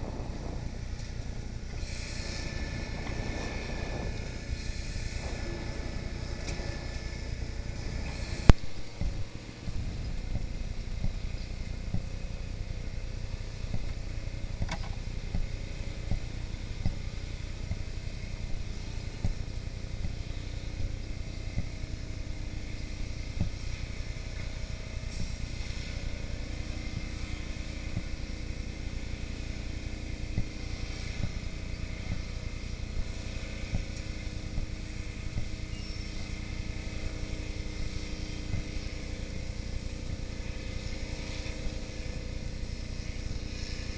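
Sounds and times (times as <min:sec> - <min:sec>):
fire truck engines running: 0:00.0 - 0:43.9.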